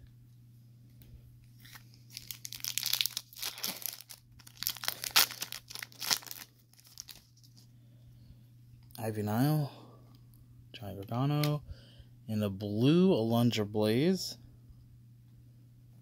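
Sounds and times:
foil pack tearing and crinkling: 0:01.6 - 0:07.3.

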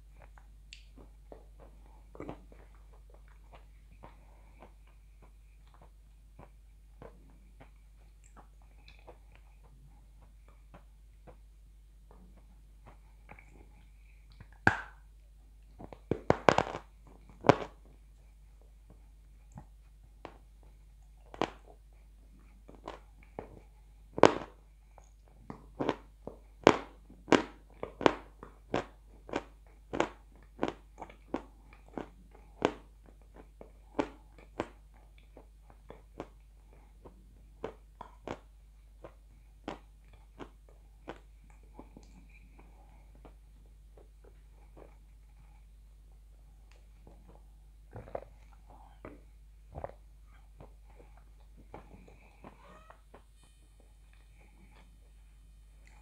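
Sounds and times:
crunching and chewing of clay: 0:15.8 - 0:17.9, 0:20.2 - 0:45.7, 0:46.6 - 0:52.6.

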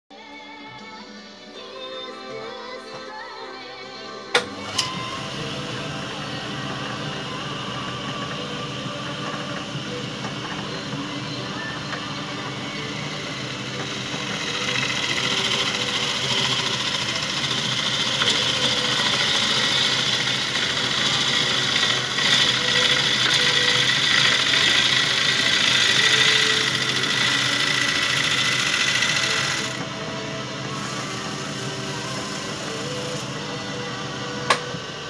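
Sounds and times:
lathe motor hum: 0:04.4 - 0:35.0
gouge shaving wood: 0:12.0 - 0:29.8.

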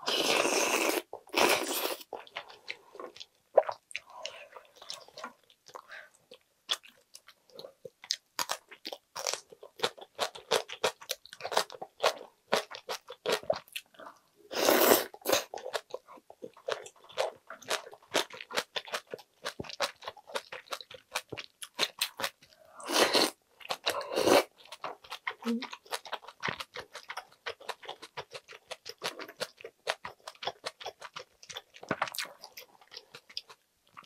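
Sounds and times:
slurping: 0:00.0 - 0:03.2, 0:14.5 - 0:15.5
crunching and chewing: 0:15.1 - 0:34.0.

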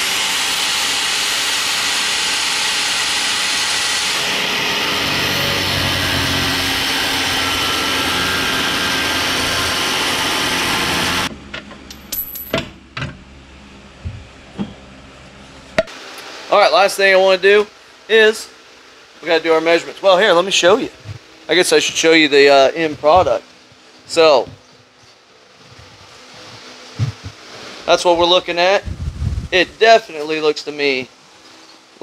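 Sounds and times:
angle grinder cutting steel: 0:00.0 - 0:11.3.

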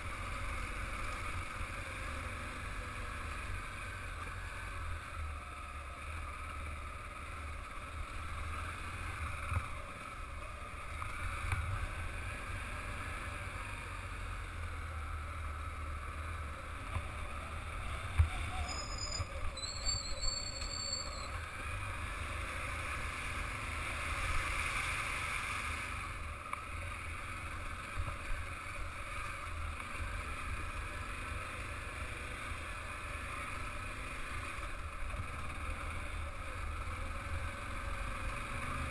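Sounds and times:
brief high squeal: 0:18.2 - 0:21.4.

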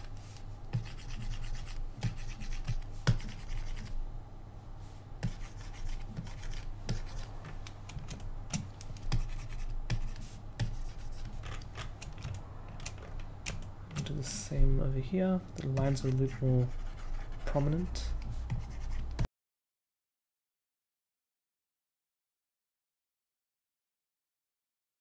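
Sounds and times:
stylus clicks and scratching: 0:00.0 - 0:04.0, 0:05.2 - 0:14.4, 0:15.6 - 0:19.3
low steady hum: 0:00.0 - 0:19.3.

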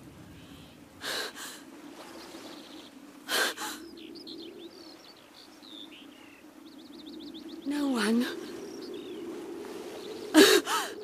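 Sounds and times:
small birds chirping: 0:00.2 - 0:11.0.

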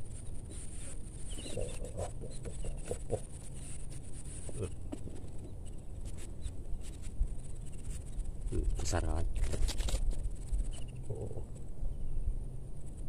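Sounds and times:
grass and weeds rustling: 0:00.0 - 0:13.0
wind rumble on microphone: 0:00.0 - 0:13.0.

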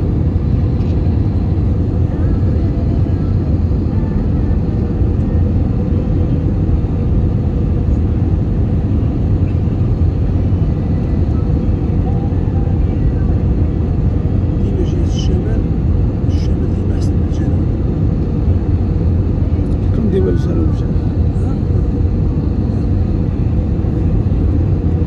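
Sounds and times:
jet engine roar in cabin: 0:00.0 - 0:25.0.

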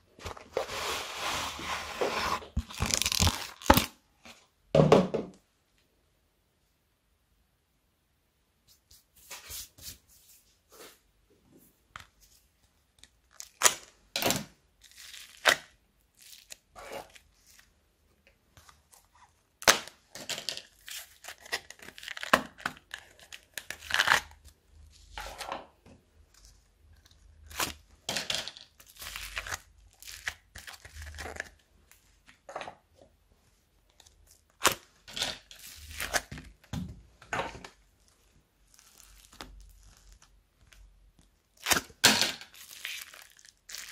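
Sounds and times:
slime crackling and crunching: 0:02.6 - 0:03.9, 0:38.6 - 0:40.8, 0:41.5 - 0:43.9.

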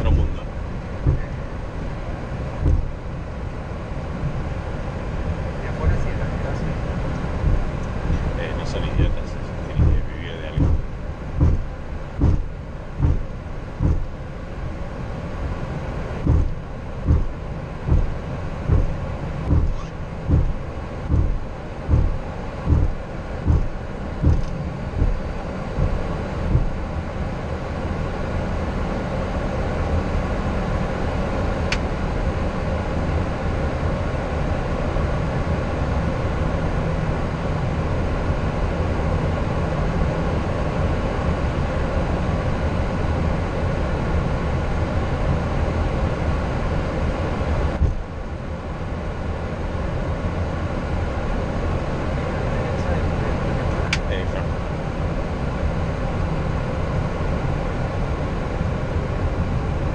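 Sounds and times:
jet engines rumbling: 0:00.0 - 0:59.9
regular thumps: 0:01.0 - 0:01.4, 0:02.6 - 0:03.0, 0:07.3 - 0:08.4, 0:09.8 - 0:14.1, 0:16.2 - 0:26.8.

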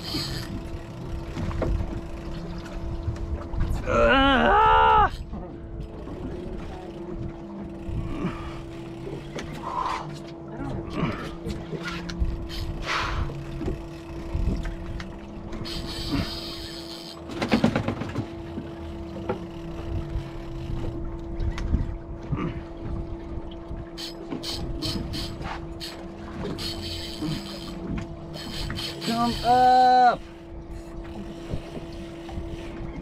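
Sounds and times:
fishing reel cranking: 0:00.0 - 0:02.4, 0:12.0 - 0:17.7, 0:18.8 - 0:21.0, 0:24.0 - 0:32.8
rod and reel clicks: 0:00.0 - 0:03.2, 0:05.8 - 0:10.4, 0:11.4 - 0:21.8, 0:24.0 - 0:33.0
outboard engines idling: 0:00.0 - 0:33.0
water noise: 0:00.0 - 0:33.0
wind: 0:00.0 - 0:33.0.

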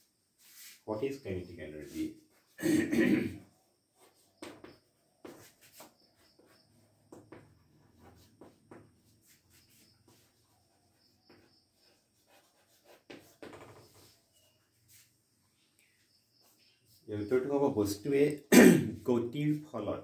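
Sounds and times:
chalk writing on blackboard: 0:00.4 - 0:02.6, 0:04.0 - 0:15.2, 0:16.3 - 0:17.1.

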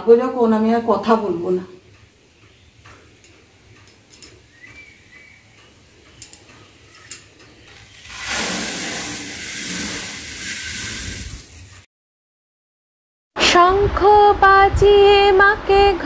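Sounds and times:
dry grain pouring hiss: 0:07.7 - 0:11.9.

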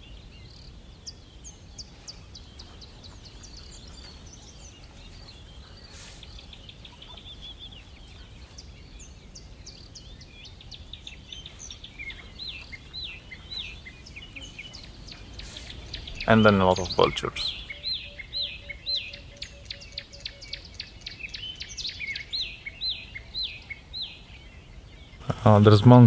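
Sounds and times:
whistled bird notes: 0:00.0 - 0:25.2
birds chirping: 0:00.0 - 0:26.0.

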